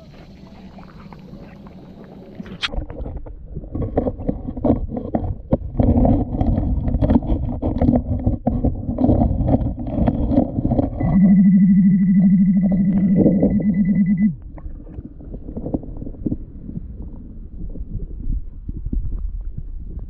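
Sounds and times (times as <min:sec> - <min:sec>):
muffled churning water rumble: 0:00.0 - 0:20.0
stones clattering underwater: 0:02.4 - 0:11.0.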